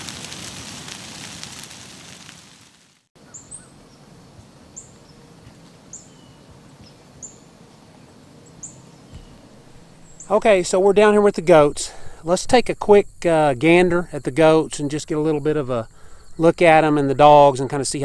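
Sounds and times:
bird chirping: 0:03.2 - 0:05.3, 0:05.9 - 0:10.4.

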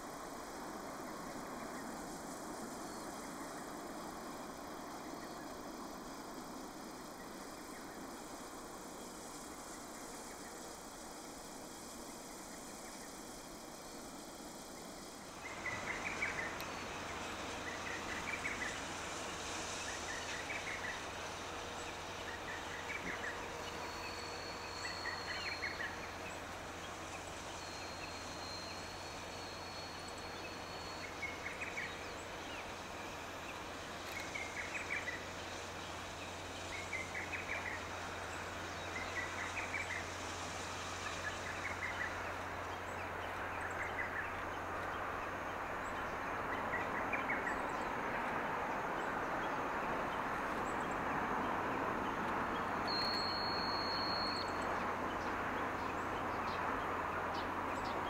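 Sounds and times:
steam locomotive hissing and humming: 0:00.0 - 0:56.8
bird trilling chirps: 0:52.9 - 0:54.6.

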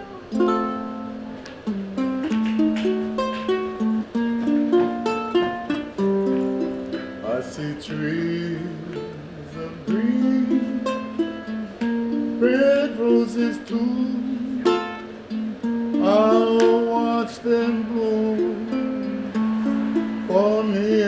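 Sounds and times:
ukulele strumming: 0:00.0 - 0:21.0
man singing: 0:07.0 - 0:19.4, 0:20.2 - 0:21.0.

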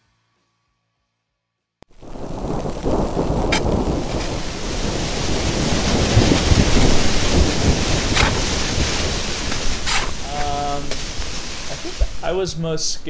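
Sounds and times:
storm wind buffeting tent: 0:01.9 - 0:13.0
brief rustle: 0:09.5 - 0:12.1.

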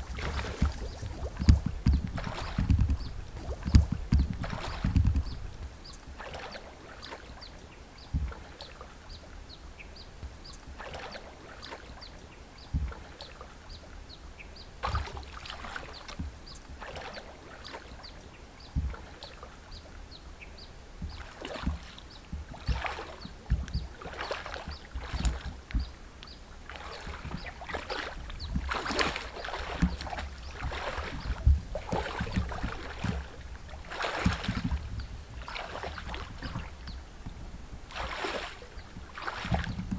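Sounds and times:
water sloshing and splashing: 0:00.0 - 0:39.9.

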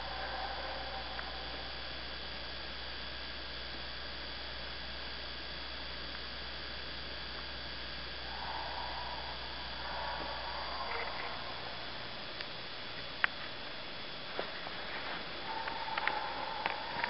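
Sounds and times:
low electrical hum: 0:00.0 - 0:17.0
steady hiss: 0:00.0 - 0:17.0.

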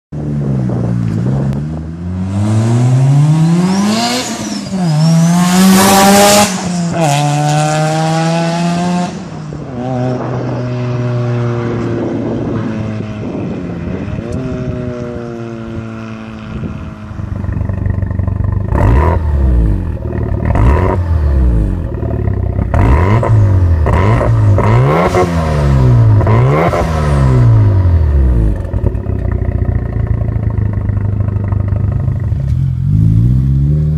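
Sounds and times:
car engine revving: 0:00.4 - 0:33.9
rotary engine accelerating: 0:00.5 - 0:33.9
exhaust cracks: 0:17.2 - 0:25.2, 0:25.8 - 0:33.4.

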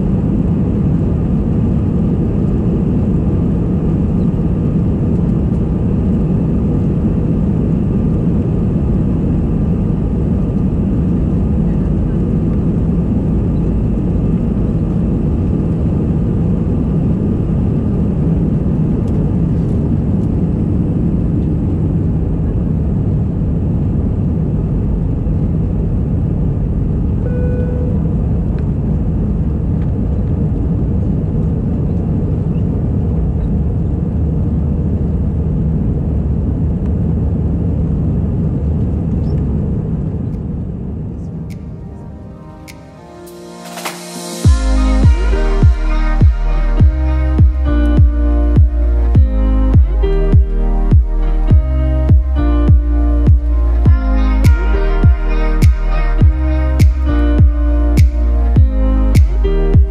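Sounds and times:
jet engines and air rumbling: 0:00.0 - 0:59.9
brief cabin tone: 0:27.2 - 0:28.2.

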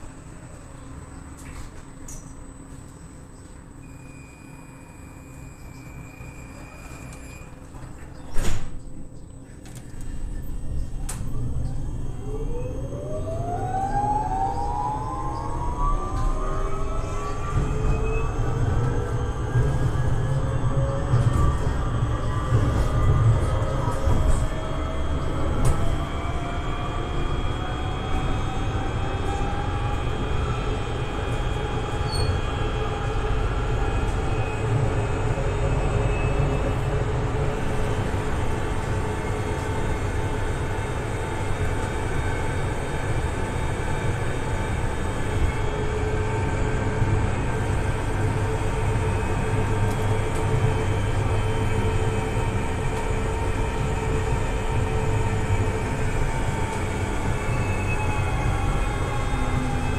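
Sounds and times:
tram wheels rumbling: 0:05.6 - 0:59.9.

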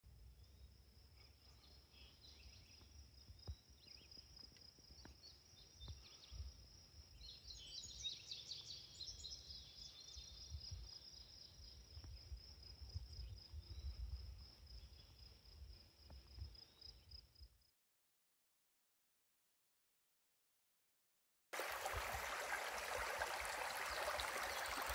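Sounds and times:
birds chirping: 0:21.6 - 0:24.9.

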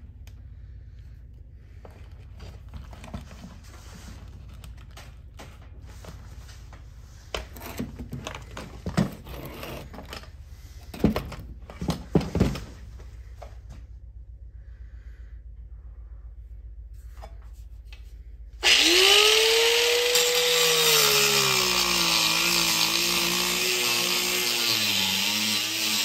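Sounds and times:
low steady hum: 0:00.0 - 0:20.6.

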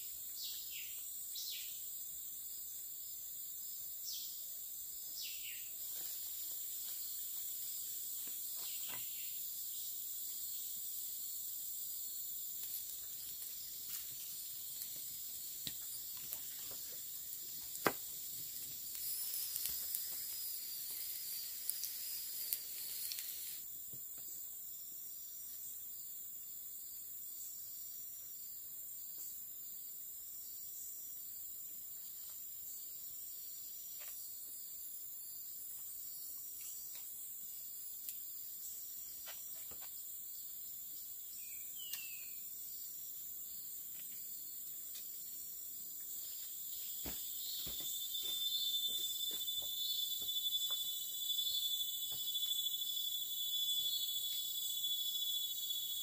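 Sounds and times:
insects droning: 0:00.0 - 0:56.0
campfire crackling: 0:12.5 - 0:23.7
falling whistled calls: 0:47.1 - 0:56.0.

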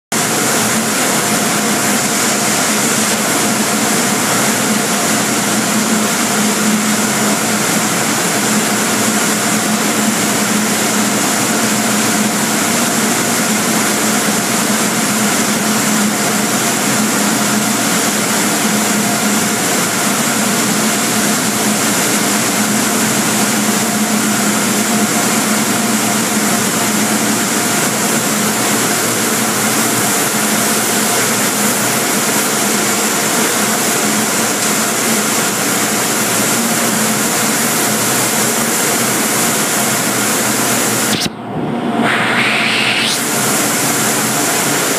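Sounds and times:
blowers rushing air: 0:40.8 - 0:44.9.

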